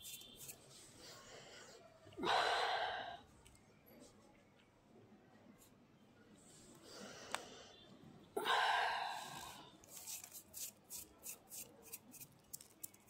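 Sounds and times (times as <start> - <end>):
breathy exhale: 1.1 - 3.2, 8.4 - 9.8.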